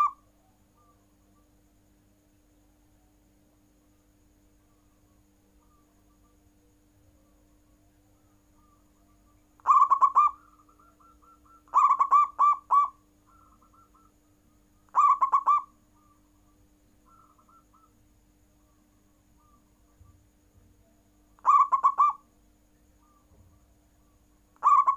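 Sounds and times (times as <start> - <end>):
dove cooing: 0.0 - 1.0, 8.2 - 14.3, 14.9 - 16.2, 17.1 - 18.0, 21.4 - 22.2, 24.6 - 24.9.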